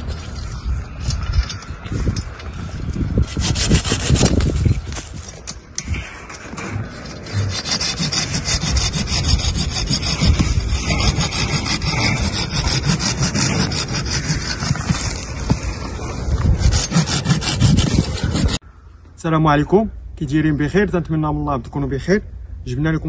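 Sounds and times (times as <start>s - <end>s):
saw cutting tree branch: 3.2s - 4.8s, 7.0s - 15.4s, 16.4s - 18.6s.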